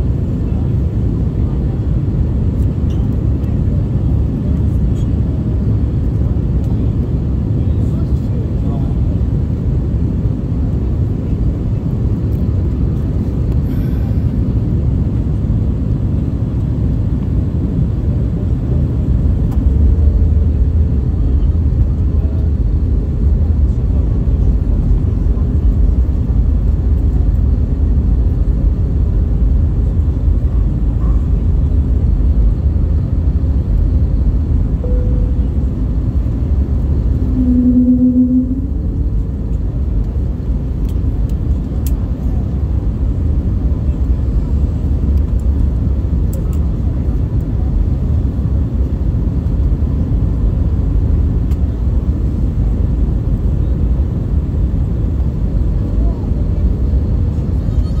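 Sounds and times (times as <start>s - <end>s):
airplane cabin rumble: 0.0s - 58.0s
brief low hum: 34.8s - 39.7s.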